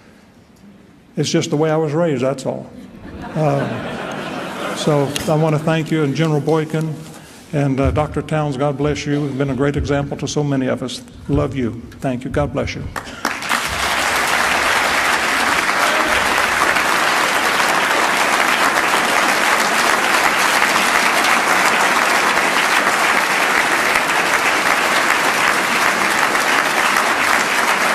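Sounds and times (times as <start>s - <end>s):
large audience applauding: 13.0s - 27.9s.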